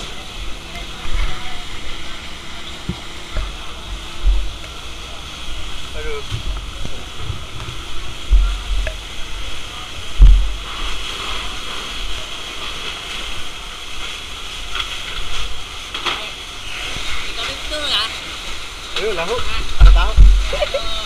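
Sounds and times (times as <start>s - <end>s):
fire hose spraying water: 0.0s - 21.0s
heavy low thumps: 2.9s - 4.6s, 5.5s - 10.9s, 19.8s - 20.5s.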